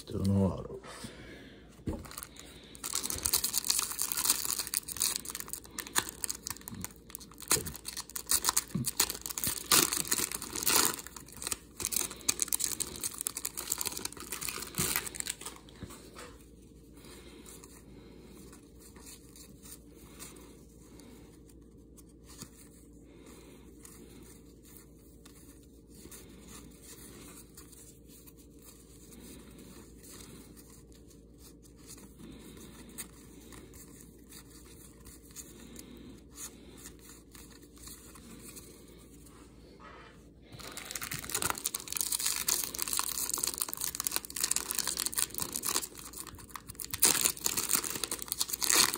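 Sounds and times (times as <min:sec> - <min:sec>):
foil wrapper crinkling: 0:01.9 - 0:15.8, 0:40.6 - 0:48.9
foil pack tearing: 0:02.0 - 0:15.6, 0:40.6 - 0:48.9.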